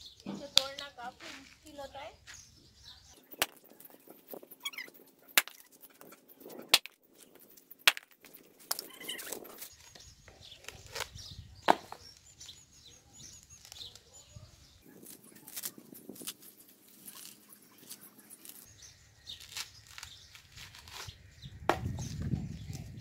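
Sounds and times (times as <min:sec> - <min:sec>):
coconut cracking open: 0:05.4 - 0:05.6, 0:06.7 - 0:08.9, 0:14.9 - 0:18.7, 0:19.3 - 0:22.1.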